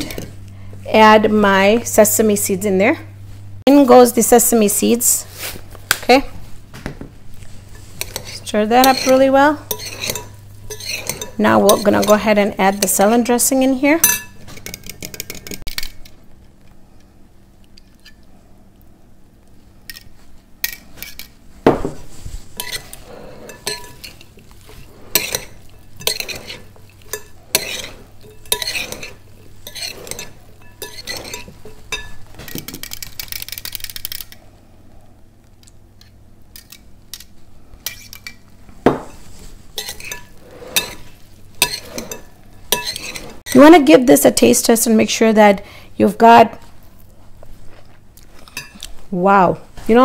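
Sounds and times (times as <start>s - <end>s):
spoon scraping glass bowl: 7.7s - 13.4s, 22.6s - 33.1s, 39.0s - 43.8s.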